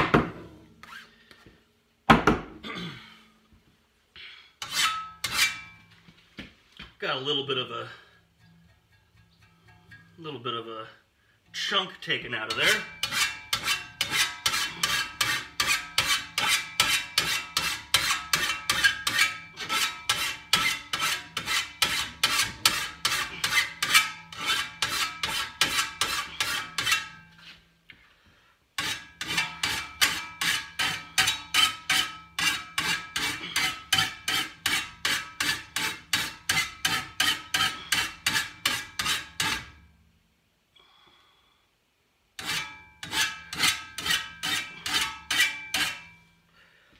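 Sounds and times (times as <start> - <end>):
file rasping on metal blade: 0.8 - 1.1, 4.6 - 5.8, 12.5 - 27.3, 28.8 - 39.8, 42.4 - 46.2
metal blade ringing: 4.7 - 5.9.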